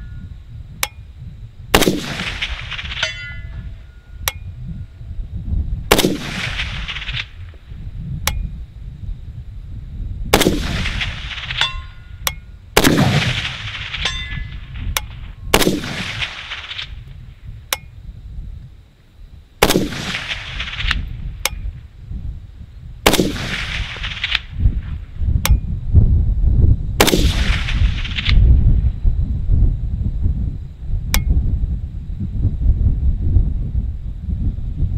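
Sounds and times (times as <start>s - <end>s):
short metallic pings: 0.0s - 1.0s, 3.0s - 4.6s, 11.6s - 12.6s, 14.0s - 15.1s
rifle shots echoing: 1.8s - 3.7s, 5.9s - 7.3s, 10.3s - 11.9s, 12.8s - 16.9s, 19.6s - 21.0s, 23.1s - 24.4s, 27.0s - 28.4s.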